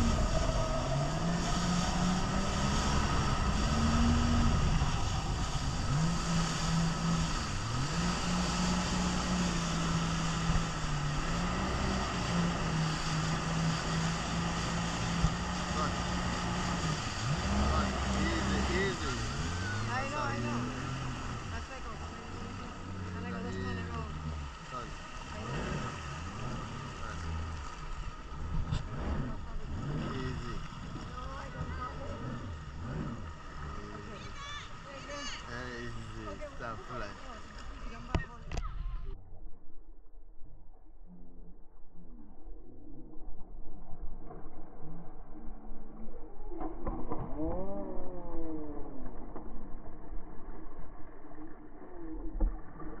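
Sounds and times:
water spray rushing: 0.0s - 38.3s
jet ski engine running: 0.0s - 39.0s
wind: 0.0s - 53.0s.

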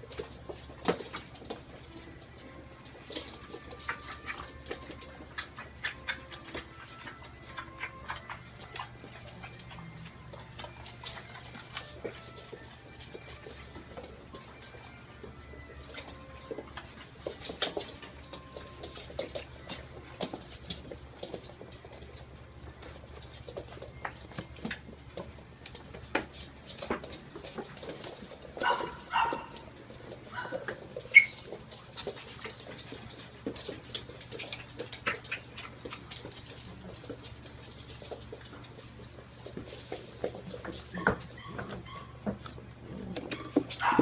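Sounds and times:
paws clicking on floor: 0.0s - 44.0s
puppy yips and whines: 30.4s - 31.4s, 41.0s - 42.2s.

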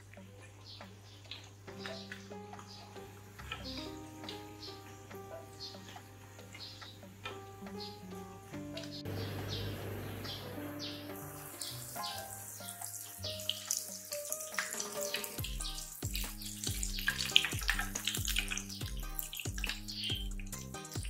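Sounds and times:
oil sizzling while deep-frying: 8.8s - 21.0s
background music with bass beat: 15.4s - 21.0s.

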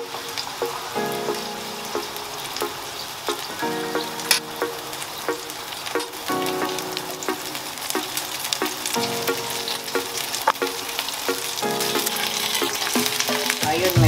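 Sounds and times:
tacos sizzling in a pan: 7.1s - 14.0s.

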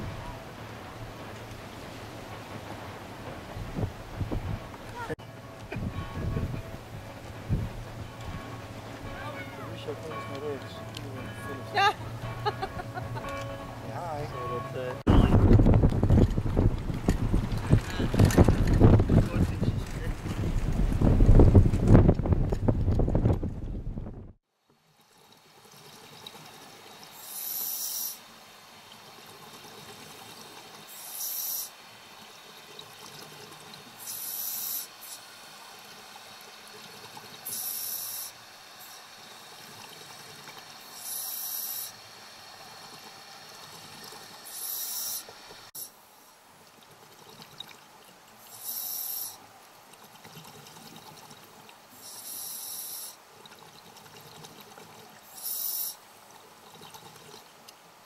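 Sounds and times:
regulator hiss: 27.0s - 28.4s, 30.8s - 31.9s, 33.9s - 46.4s, 48.4s - 49.4s, 51.9s - 53.2s, 55.2s - 56.1s.

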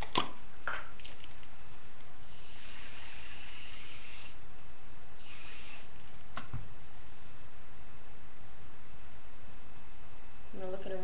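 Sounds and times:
hairspray hissing: 2.2s - 4.4s, 5.2s - 6.0s.

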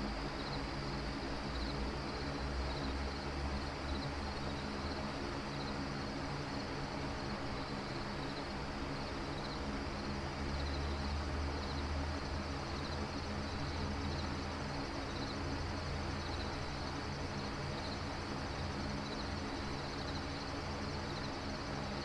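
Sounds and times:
low rumble and hiss: 0.0s - 22.0s.

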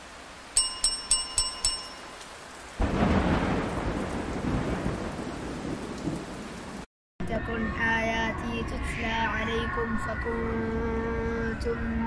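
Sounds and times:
bright ringing pings: 0.6s - 2.3s.

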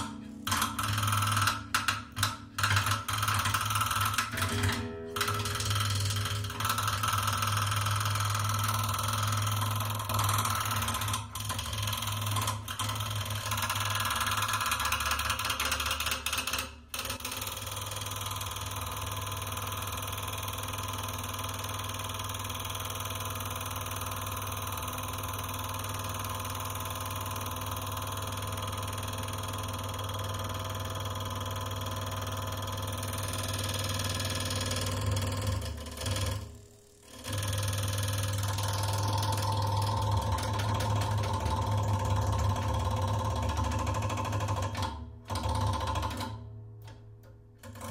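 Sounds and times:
guitar strings buzzing drone: 0.0s - 7.1s.

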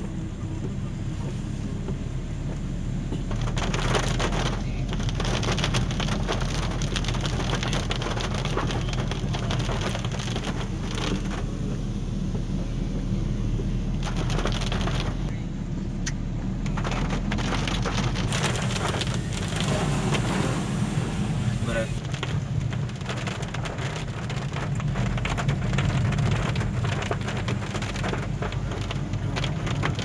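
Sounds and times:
car driving on wet road: 0.0s - 30.0s
crackling: 3.1s - 11.7s, 13.8s - 15.4s, 16.0s - 20.8s, 21.6s - 30.0s.

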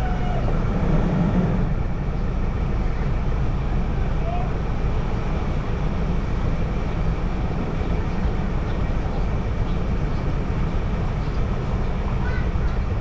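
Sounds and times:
car engine and tyre noise: 0.0s - 13.0s.

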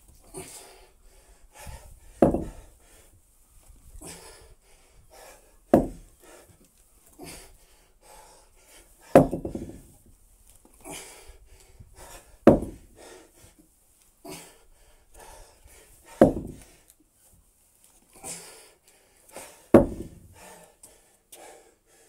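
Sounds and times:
person panting hard: 0.3s - 3.2s, 4.0s - 6.6s, 7.2s - 9.8s, 10.8s - 13.6s, 14.2s - 16.9s, 18.2s - 22.0s
weights thudding on paving: 1.6s - 2.7s, 5.7s - 6.1s, 9.0s - 9.9s, 12.0s - 13.0s, 16.1s - 16.8s, 19.7s - 20.4s.

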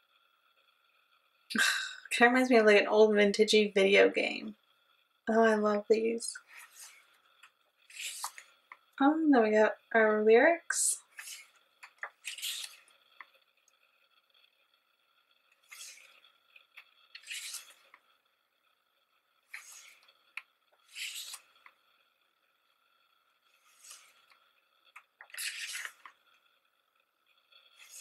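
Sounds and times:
glossy pages being turned: 6.4s - 7.1s, 7.8s - 8.6s, 11.0s - 13.3s, 15.5s - 18.0s, 19.5s - 21.8s, 23.5s - 26.3s, 27.7s - 28.0s.

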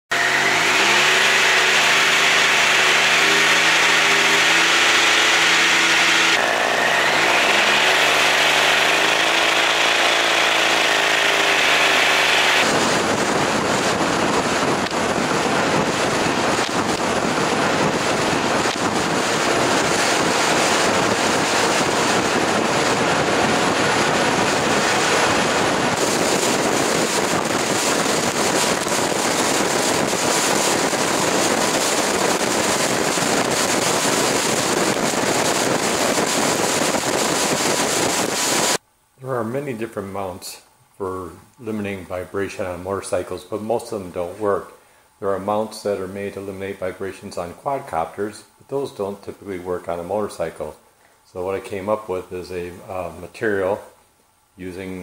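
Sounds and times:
motorcycle engine revving steadily: 0.0s - 38.8s
wind and road noise: 0.1s - 39.0s.

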